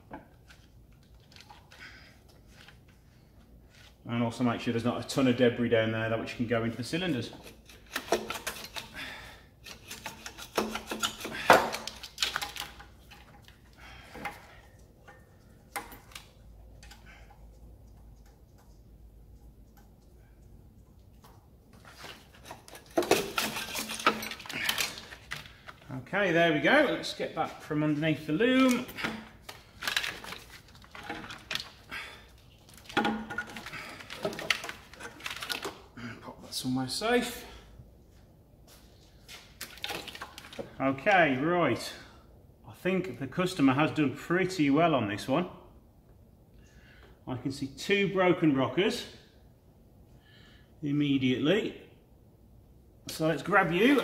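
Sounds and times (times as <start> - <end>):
gloved hands handling car parts: 0.0 - 4.0, 6.8 - 36.0, 38.2 - 40.8.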